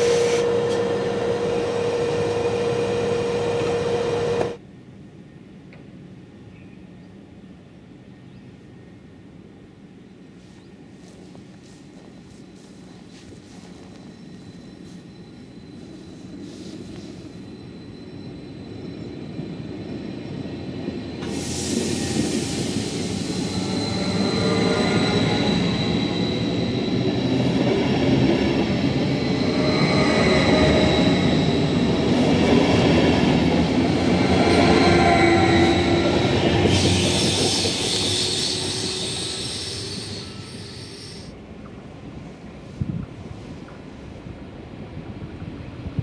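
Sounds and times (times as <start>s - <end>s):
train passing: 0.0s - 6.5s, 7.2s - 46.0s
high wheel squeal: 12.1s - 27.9s, 28.6s - 41.4s.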